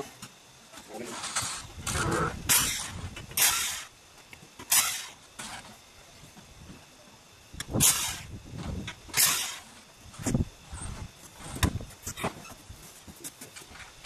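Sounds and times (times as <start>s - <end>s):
cordless drill bursts: 2.5s - 4.0s, 4.7s - 5.6s, 7.8s - 8.3s, 9.1s - 9.7s.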